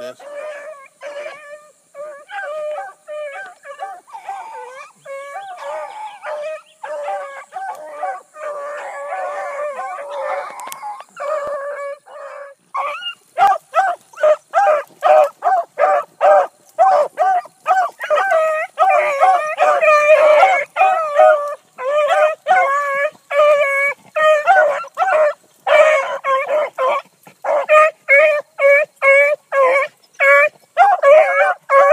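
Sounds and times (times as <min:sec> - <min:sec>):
hounds baying: 0:00.0 - 0:31.9
hound barking quickly: 0:12.8 - 0:23.8, 0:24.4 - 0:31.9.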